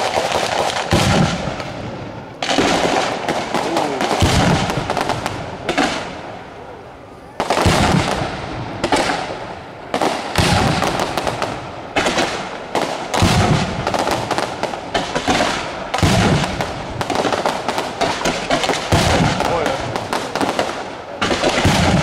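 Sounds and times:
heavy firework bangs: 0.0s - 6.5s, 7.4s - 22.0s
firecrackers crackling: 0.0s - 22.0s.

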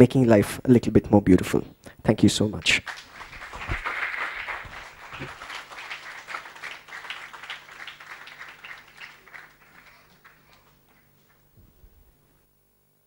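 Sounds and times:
audience applauding: 2.6s - 11.5s.

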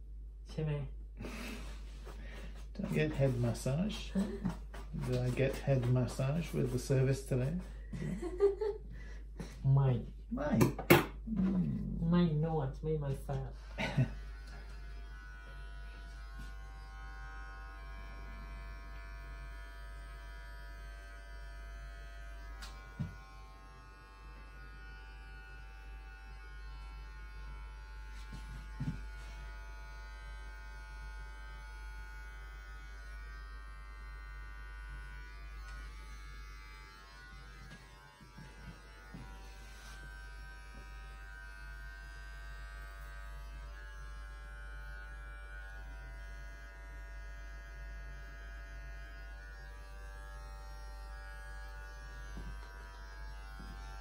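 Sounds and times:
electric hair clippers buzzing: 13.5s - 54.0s.

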